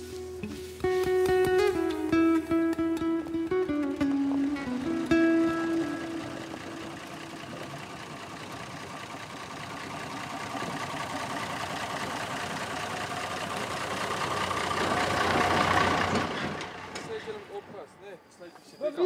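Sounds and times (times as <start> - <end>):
vehicle passing by: 4.3 - 18.2.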